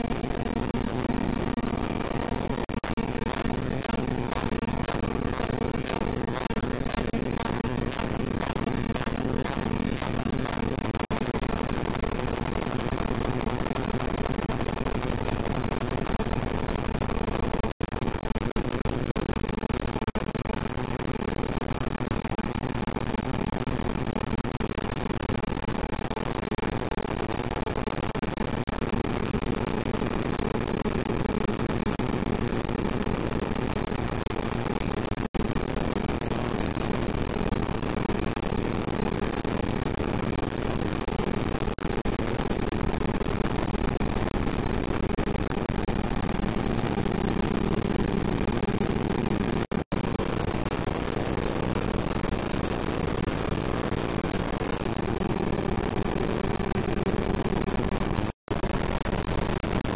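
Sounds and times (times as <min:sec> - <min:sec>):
dense digital buzzing: 0:00.0 - 0:16.9.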